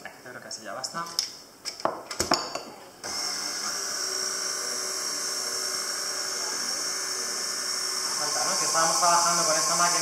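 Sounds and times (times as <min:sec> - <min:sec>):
stand mixer motor whine: 0:03.0 - 0:10.0
whisk beating batter: 0:06.4 - 0:10.0.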